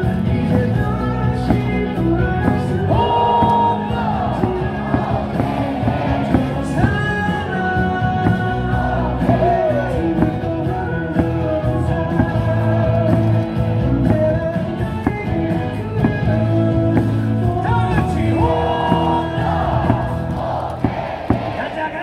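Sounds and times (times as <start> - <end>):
cheer song over loudspeakers: 0.0 - 22.0
fans singing and shouting: 0.0 - 22.0.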